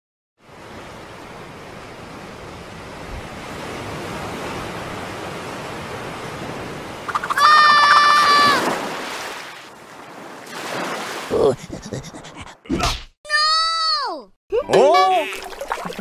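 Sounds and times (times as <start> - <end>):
rushing water and surf: 0.4 - 11.7
high squealing cry: 7.2 - 8.7.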